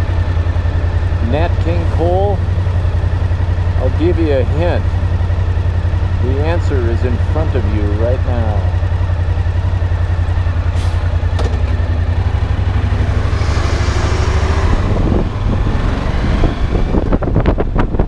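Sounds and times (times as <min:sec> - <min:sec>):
motorcycle engine: 0:00.0 - 0:18.0.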